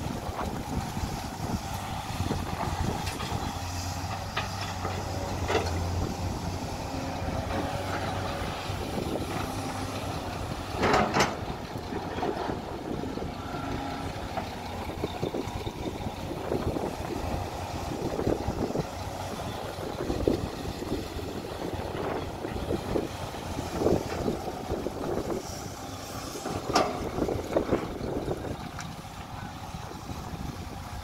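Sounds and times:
excavator diesel engine running: 0.0 - 31.0
excavator bucket clunks: 10.8 - 11.5.

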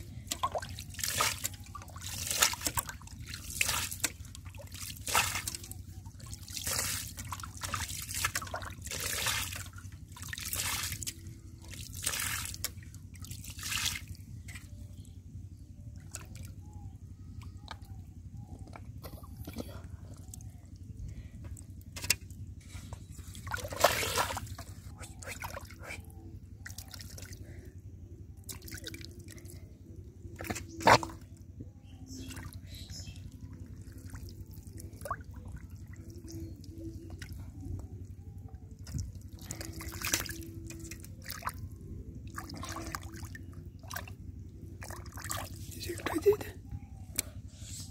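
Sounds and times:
puddle water splashing: 0.0 - 14.8, 23.2 - 26.0, 28.4 - 29.5, 30.4 - 31.3, 32.2 - 46.5.

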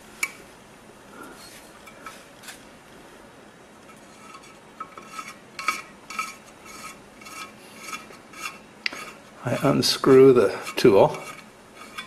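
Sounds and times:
short metallic scrapes: 4.0 - 12.0.

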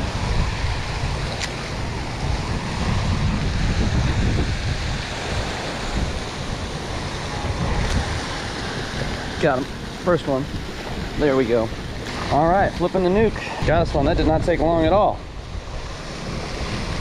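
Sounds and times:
fountains splashing: 0.0 - 15.2
wind buffeting microphone: 0.0 - 17.0.

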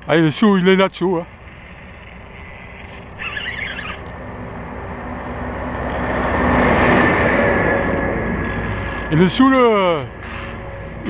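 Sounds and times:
fishing reel whirring: 1.3 - 5.0, 5.6 - 11.0
short warbling squeal: 2.4 - 4.1.

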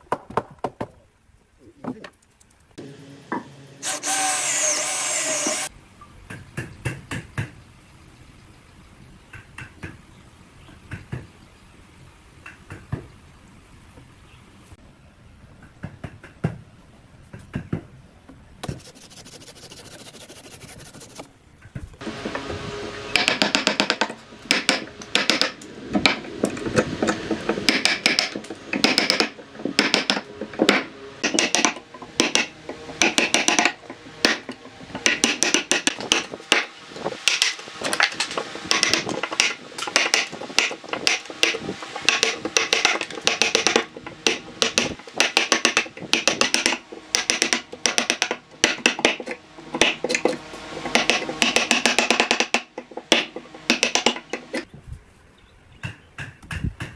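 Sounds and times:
mallet striking chisel: 23.2 - 26.2, 27.0 - 36.7, 38.7 - 54.5.

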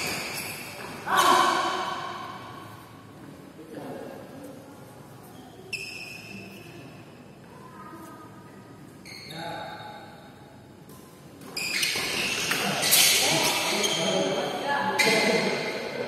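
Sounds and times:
sneaker squeaks on court floor: 0.0 - 1.3, 5.3 - 6.9, 9.0 - 10.0, 11.4 - 15.7.

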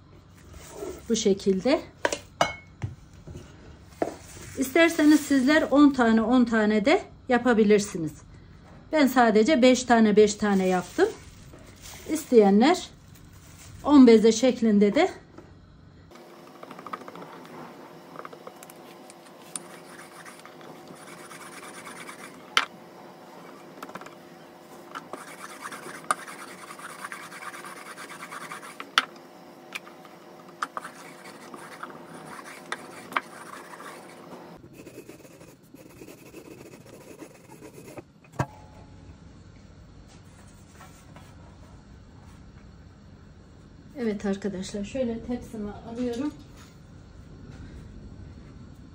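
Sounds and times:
hands rubbing dough on wood: 19.5 - 22.4, 25.0 - 28.9, 30.6 - 38.0.

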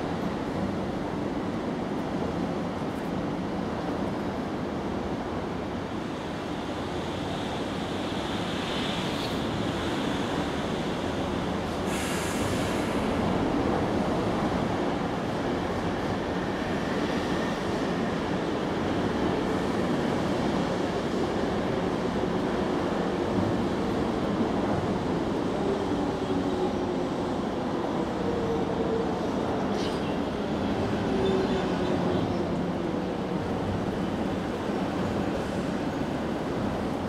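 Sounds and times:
brief hiss: 11.9 - 13.1.

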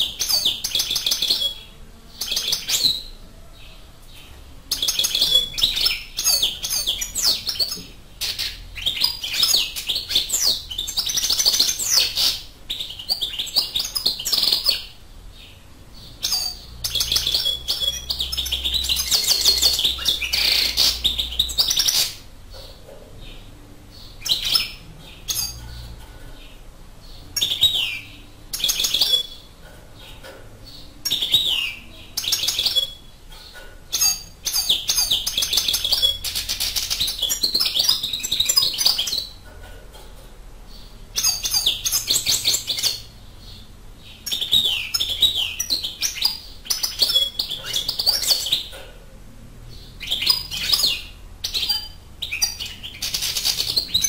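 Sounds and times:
goldfinch twittering song: 16.1 - 22.2.

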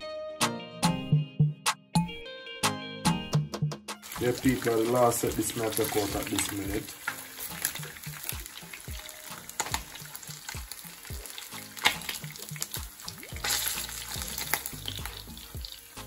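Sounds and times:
fish sizzling in hot oil: 4.0 - 16.0.

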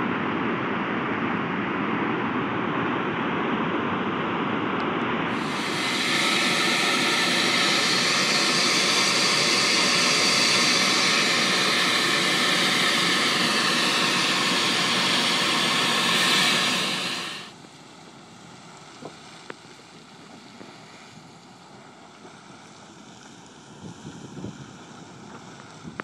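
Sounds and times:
steam vent hissing loudly: 5.3 - 17.7, 18.5 - 26.0.

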